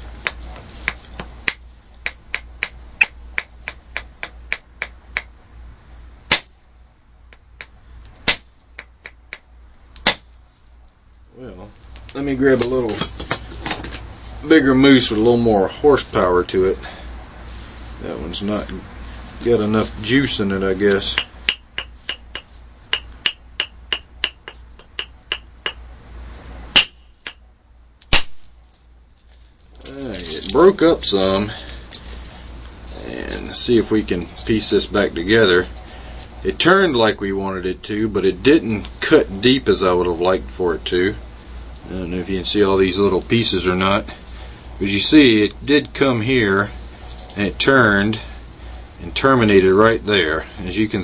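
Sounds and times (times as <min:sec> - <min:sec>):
antler clicking on stone: 0:00.2 - 0:05.3, 0:07.3 - 0:09.4, 0:21.2 - 0:25.9
antler striking stone: 0:06.3 - 0:06.6, 0:10.0 - 0:10.3, 0:21.1 - 0:25.9, 0:26.7 - 0:27.4
sharp crack: 0:06.3 - 0:06.6, 0:07.6 - 0:09.4, 0:10.0 - 0:10.4, 0:26.7 - 0:27.4, 0:28.0 - 0:28.6.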